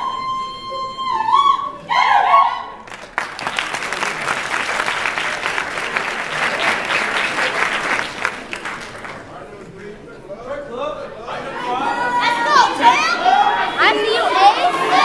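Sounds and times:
audience applauding: 2.8s - 9.6s.

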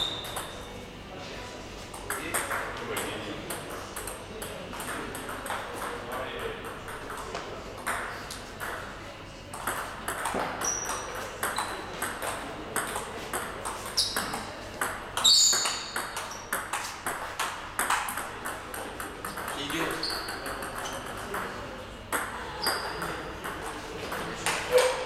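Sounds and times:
table tennis ball clicking: 0.0s - 0.6s, 9.5s - 24.7s
sports shoes squeaking on floor: 0.0s - 0.7s, 10.4s - 12.0s, 13.8s - 14.5s, 15.2s - 16.7s, 19.8s - 21.2s, 22.6s - 23.3s.

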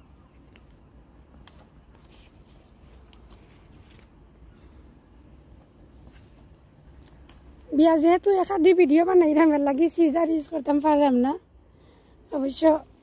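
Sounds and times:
rustling of leaves and vines: 0.0s - 11.1s
bean pods snapping: 0.3s - 2.0s, 2.8s - 4.2s, 6.4s - 7.7s.

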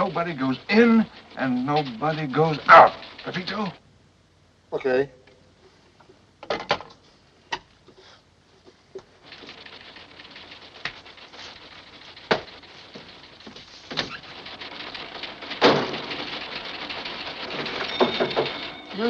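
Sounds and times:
teletype clattering: 0.0s - 3.8s, 9.0s - 19.0s
typewriters clattering: 0.0s - 3.8s, 9.0s - 19.0s
sharp knocks: 9.2s - 19.0s.

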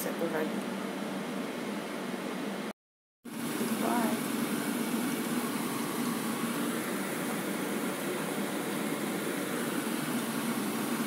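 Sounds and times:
hot oil sizzling and bubbling: 3.3s - 11.0s.

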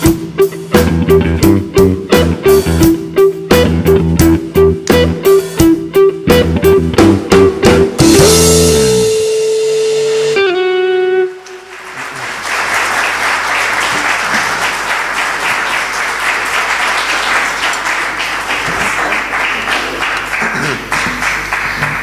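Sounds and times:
audience applauding: 11.4s - 22.0s.

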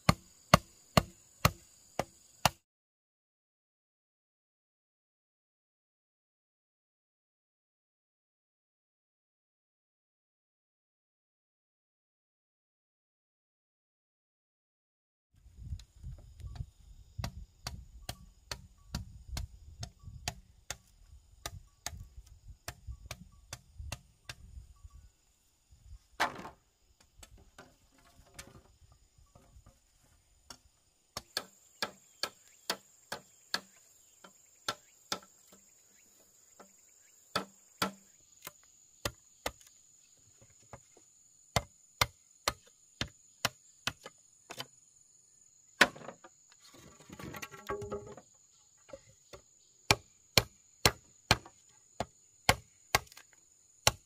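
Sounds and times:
insects trilling: 15.6s - 54.0s.

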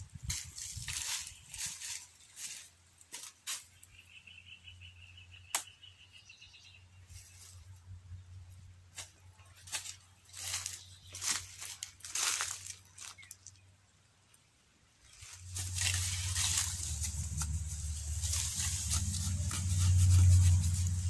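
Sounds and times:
dry plant material rustling: 0.0s - 3.9s, 7.1s - 7.8s, 8.9s - 13.6s, 15.0s - 21.0s
sharp snaps of plant stems: 5.5s - 5.8s.

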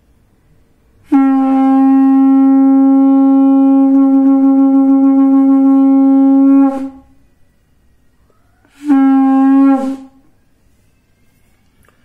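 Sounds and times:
conch shell blown: 1.0s - 7.3s, 8.3s - 11.5s.

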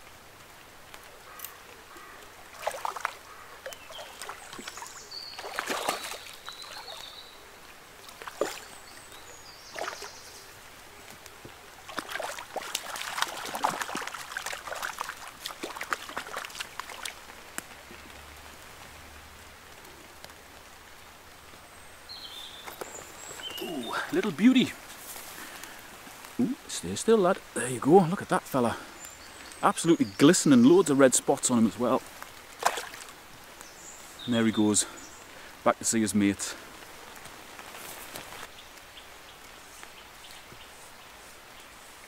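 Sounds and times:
river trickling: 0.0s - 42.0s
fish splashing and thrashing: 2.5s - 7.1s, 8.0s - 8.8s, 11.9s - 17.3s, 32.6s - 33.2s.

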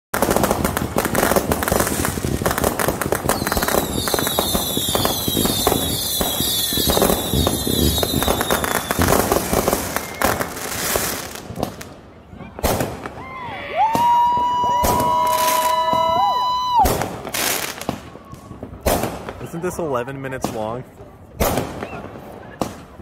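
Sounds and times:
fireworks cracks and bangs: 0.1s - 23.0s
crackling firework sparks: 0.2s - 19.7s, 20.4s - 23.0s
high falling whistles: 3.4s - 10.8s.

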